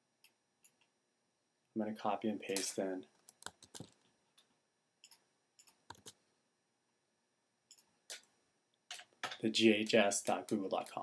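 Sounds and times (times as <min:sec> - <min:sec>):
computer mouse and keyboard clicks: 0:02.5 - 0:04.1, 0:05.0 - 0:06.2.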